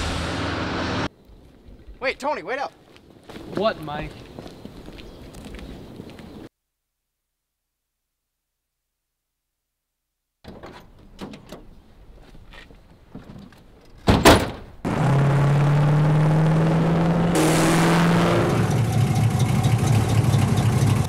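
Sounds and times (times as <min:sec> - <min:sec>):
road and wind noise: 0:00.0 - 0:02.0, 0:02.7 - 0:06.5, 0:10.7 - 0:21.0
car engine running: 0:14.9 - 0:21.0.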